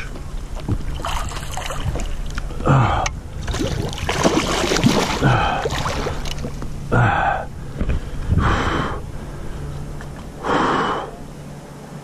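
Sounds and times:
fish thrashing and water splashing: 0:00.6 - 0:02.6, 0:03.3 - 0:06.8
person gasping or grunting: 0:02.6 - 0:03.2, 0:05.2 - 0:05.8, 0:06.9 - 0:07.5.

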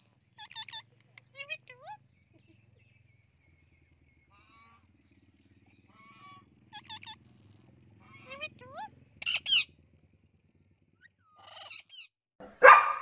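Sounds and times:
parrots squawking: 0:00.4 - 0:02.0, 0:04.3 - 0:04.9, 0:05.8 - 0:07.2, 0:08.0 - 0:09.7, 0:11.3 - 0:12.7.

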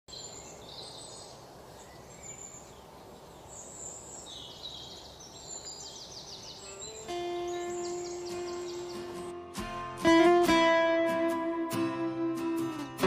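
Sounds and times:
birds chirping: 0:00.1 - 0:10.4
background hiss: 0:00.1 - 0:13.0.

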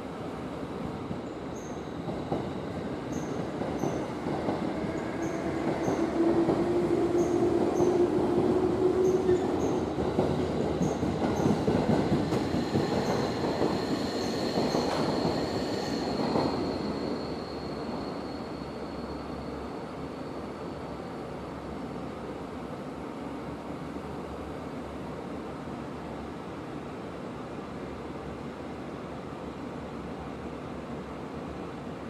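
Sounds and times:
train wheels rumbling on rail: 0:00.6 - 0:19.7
steady squeal-like tone: 0:12.5 - 0:21.0.

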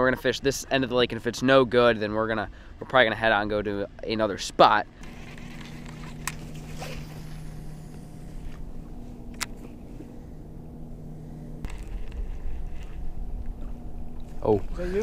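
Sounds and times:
electric trolling motor humming: 0:04.9 - 0:15.0
low rumble: 0:05.0 - 0:15.0.

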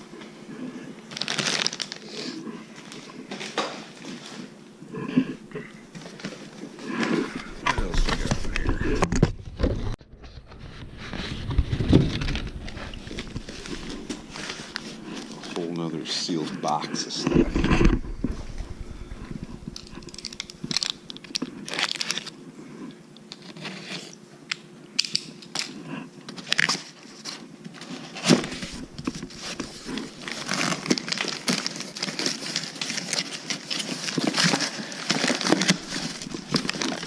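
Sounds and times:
plastic bags crinkling: 0:01.1 - 0:04.5, 0:10.9 - 0:15.8, 0:17.8 - 0:22.4, 0:27.8 - 0:37.0
cardboard box flaps scraping: 0:07.8 - 0:15.0.

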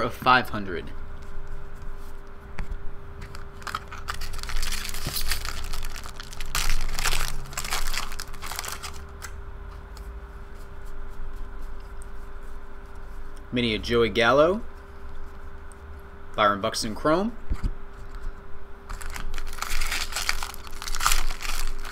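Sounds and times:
foil wrapper tearing and crinkling: 0:03.3 - 0:09.3, 0:18.9 - 0:21.9.

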